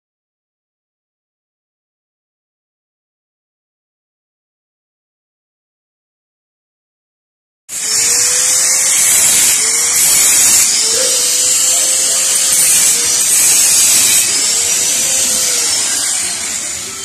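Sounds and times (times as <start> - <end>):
angle grinder grinding metal: 7.7 - 17.0.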